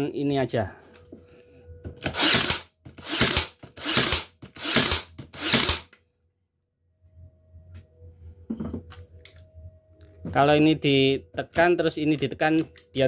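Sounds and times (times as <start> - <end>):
electric nailer firing nails: 2.0 - 6.0.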